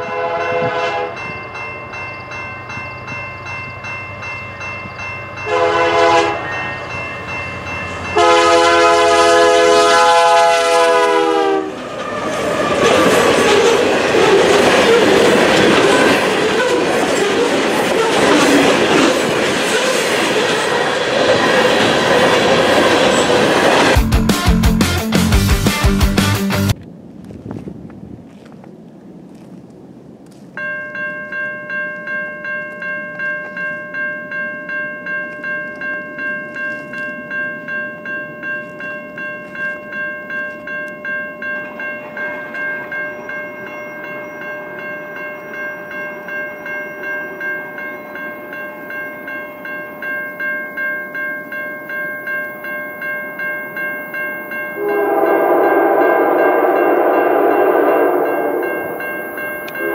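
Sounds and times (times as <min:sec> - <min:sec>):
locomotive air horn: 0:00.0 - 0:01.2, 0:05.5 - 0:06.6, 0:08.2 - 0:11.8, 0:54.8 - 0:59.0
bell ringing: 0:00.0 - 0:08.8, 0:30.6 - 0:59.9
train approaching: 0:00.0 - 0:26.8, 0:33.1 - 0:59.9.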